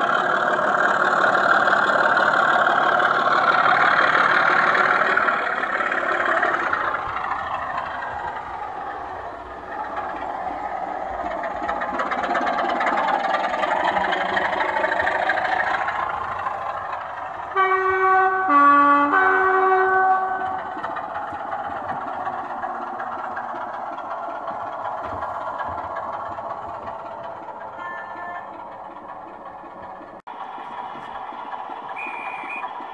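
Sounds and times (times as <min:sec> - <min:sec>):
model diesel engine sound: 0:00.0 - 0:32.9
two-tone horn: 0:17.5 - 0:20.6.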